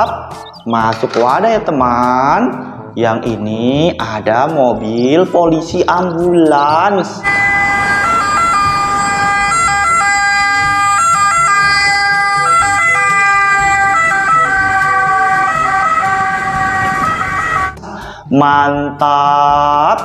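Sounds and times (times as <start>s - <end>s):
electronic ambulance siren: 6.4s - 17.8s.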